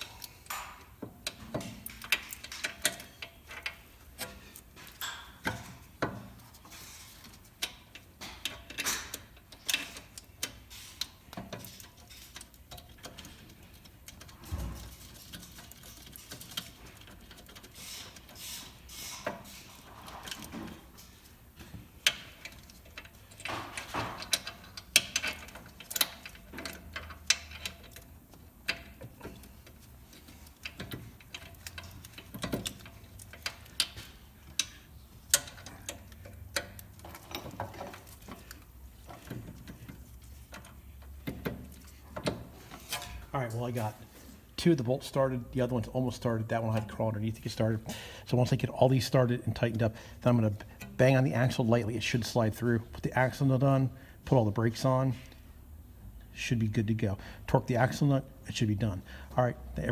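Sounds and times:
metallic clicks and clinks: 0.0 - 6.1, 22.0 - 43.2.

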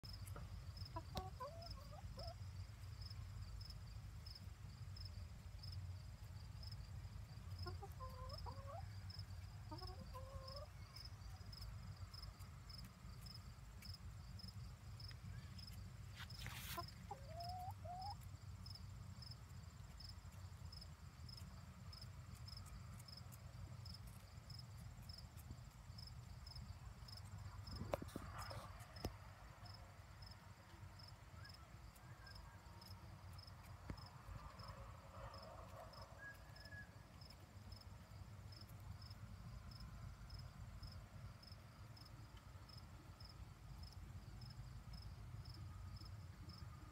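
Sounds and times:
insect chirping: 0.0 - 46.6
chickens clucking and chirping: 0.2 - 2.5, 7.5 - 11.1, 15.5 - 18.3.

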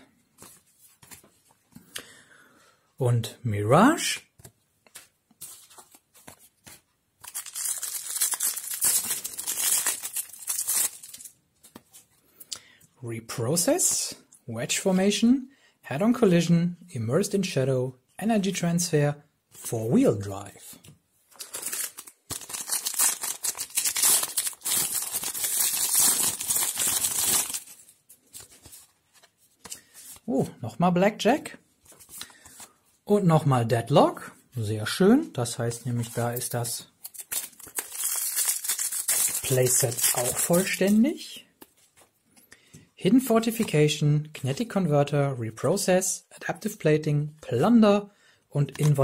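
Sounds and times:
crinkly wrapper tearing: 7.2 - 11.4, 21.3 - 28.8, 36.3 - 41.0.

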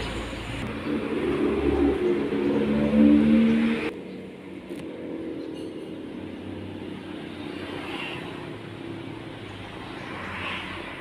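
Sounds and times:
low engine drone: 0.0 - 6.7.

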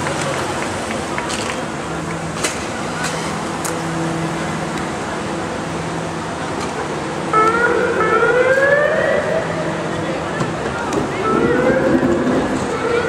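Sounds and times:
city street traffic: 0.0 - 13.0
police siren wailing: 7.2 - 13.0.

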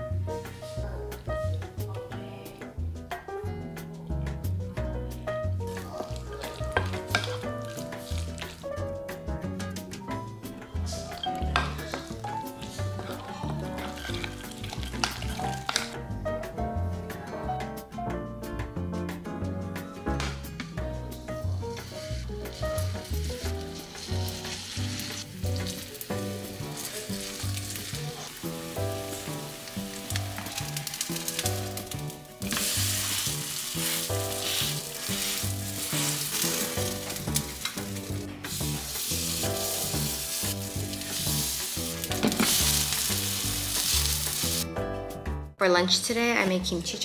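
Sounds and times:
background music with steady beat: 0.0 - 13.5, 14.4 - 27.0, 34.1 - 45.7
batter sizzling in a pan: 5.6 - 8.9, 11.0 - 16.0, 21.6 - 44.6.

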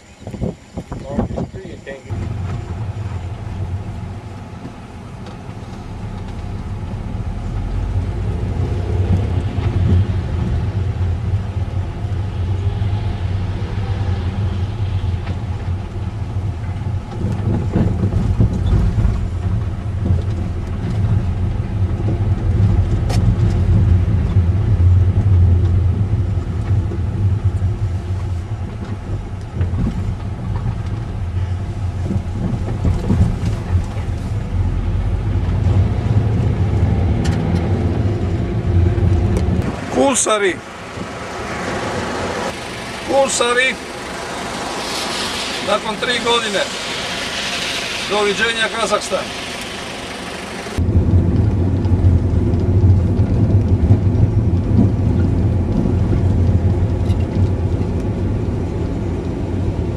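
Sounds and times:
car engine and tyres on rough road: 0.0 - 59.9.

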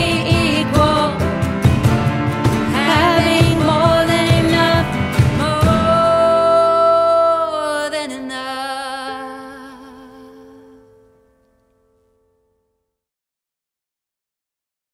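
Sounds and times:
women singing: 0.0 - 1.3, 2.6 - 10.9
cajon: 0.0 - 6.6
acoustic guitar: 0.0 - 12.1.

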